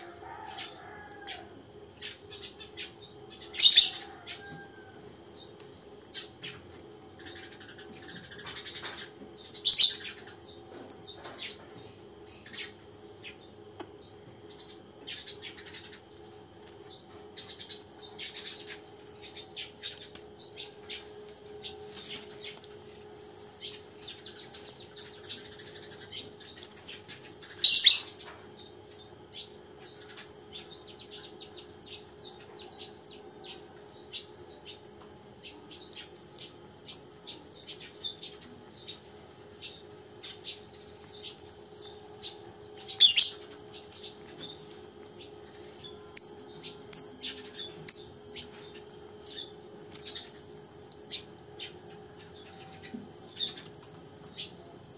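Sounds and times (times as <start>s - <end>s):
high chirping calls: 27.6s - 28.3s, 39.7s - 44.6s.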